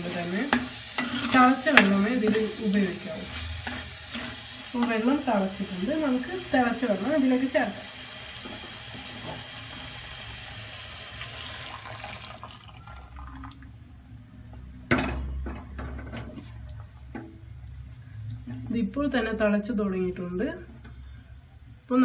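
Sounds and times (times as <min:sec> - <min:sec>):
water hissing in hot pot: 0:00.0 - 0:12.8.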